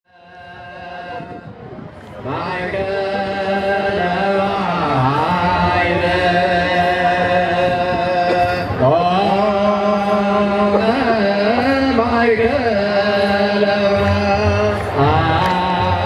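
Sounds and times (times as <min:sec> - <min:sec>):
religious chanting: 0:00.1 - 0:16.0.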